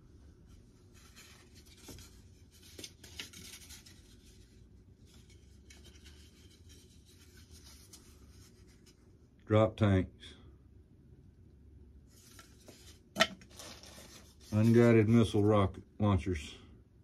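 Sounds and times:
faint rustling and scraping: 0.0 - 9.4, 12.0 - 15.6.

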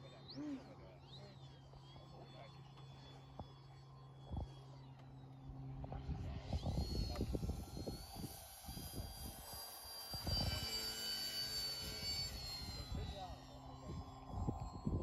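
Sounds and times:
model plane motor whining: 0.0 - 15.0
wind buffeting microphone: 5.8 - 9.6, 13.8 - 15.0.

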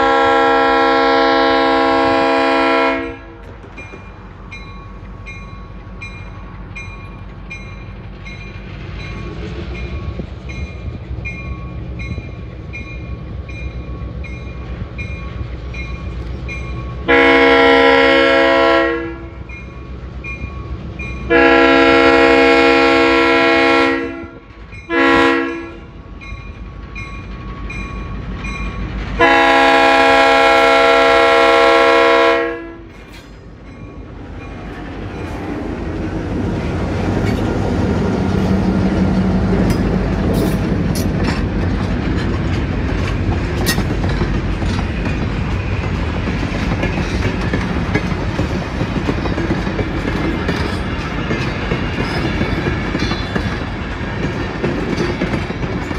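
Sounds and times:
locomotive horn blasts: 0.0 - 3.4, 17.0 - 19.4, 21.3 - 25.9, 29.2 - 32.9
crossing bell ringing: 3.0 - 31.7, 32.3 - 35.7, 46.7 - 55.9.

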